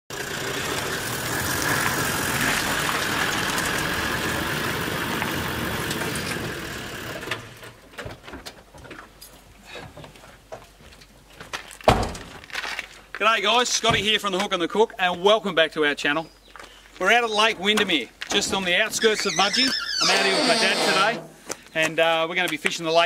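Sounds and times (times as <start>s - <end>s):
engine and tyre noise: 0.1s - 7.9s.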